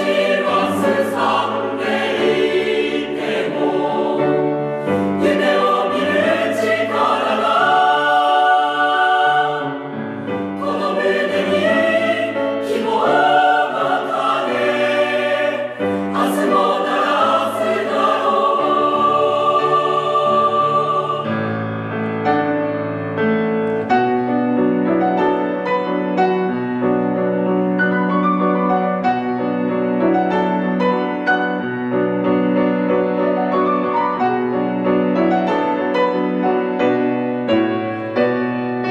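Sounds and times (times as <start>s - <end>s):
choir singing: 0.0s - 22.1s.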